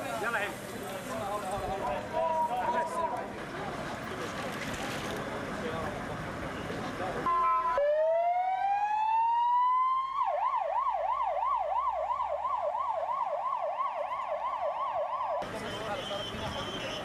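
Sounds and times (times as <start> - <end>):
ambulance siren wailing and yelping: 7.3 - 15.4.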